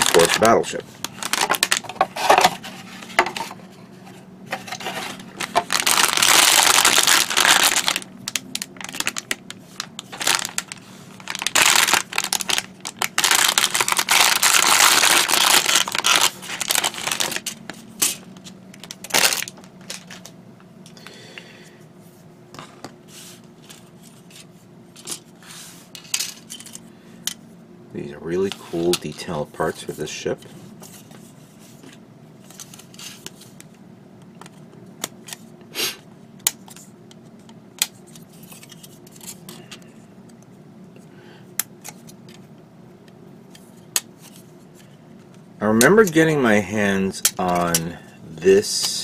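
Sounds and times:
plastic packaging crinkling: 0.0s - 3.5s, 4.6s - 20.3s.

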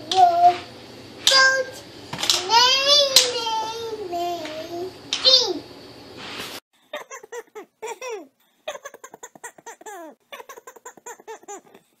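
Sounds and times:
young child giggling: 7.0s - 11.8s.

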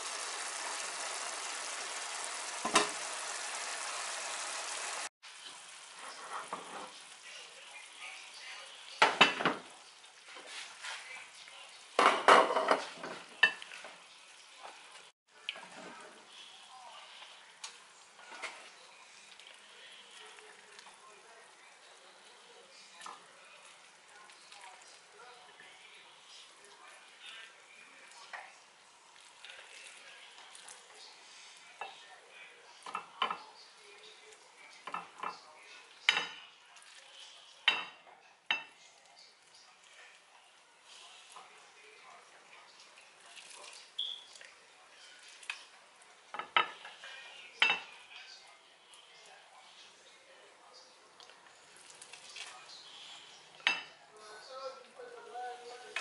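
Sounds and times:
cookware clattering on stovetop: 9.0s - 9.7s, 12.0s - 13.7s, 36.1s - 36.5s.

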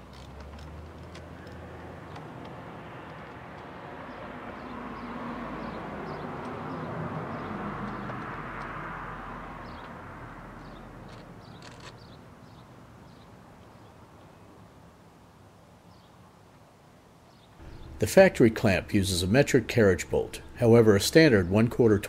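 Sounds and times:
vehicle passing: 0.0s - 11.5s, 17.6s - 22.0s.

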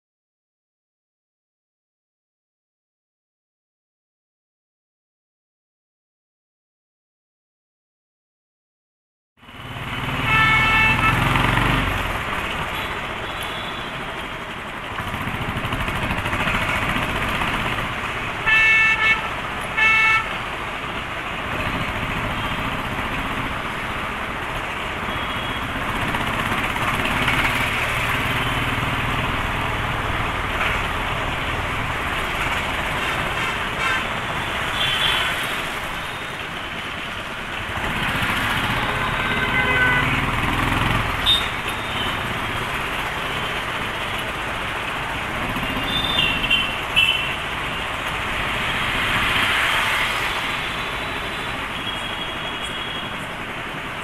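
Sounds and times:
road and traffic noise: 9.4s - 54.0s
vehicle horn honking: 10.2s - 11.3s, 18.4s - 20.3s, 33.4s - 34.2s, 38.8s - 40.3s, 41.2s - 42.2s, 45.9s - 47.4s
motorcycle engine running: 15.0s - 17.9s, 40.2s - 47.3s.

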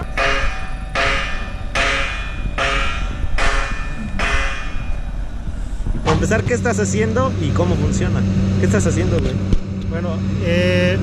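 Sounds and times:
metal being struck: 0.0s - 6.4s.

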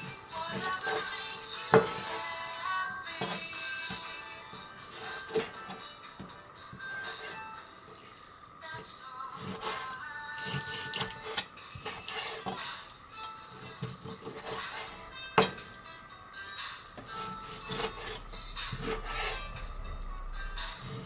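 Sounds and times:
knife cutting on cutting board: 17.1s - 19.5s.

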